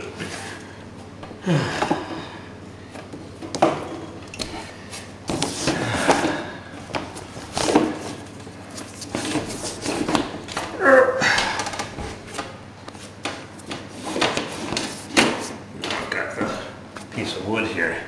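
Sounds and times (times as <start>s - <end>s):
knocks and scraping of cable and wood: 2.9s - 17.3s.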